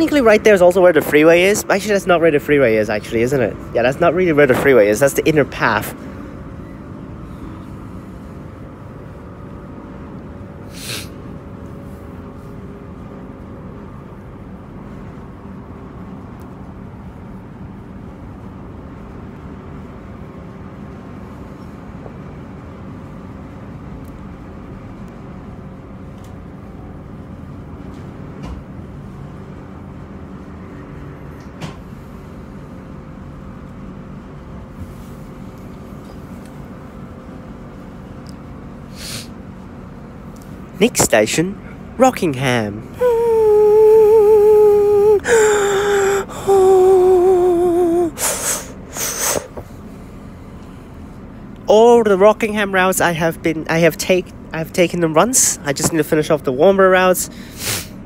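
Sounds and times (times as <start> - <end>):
wheels rumbling on rail: 0.0 - 45.2.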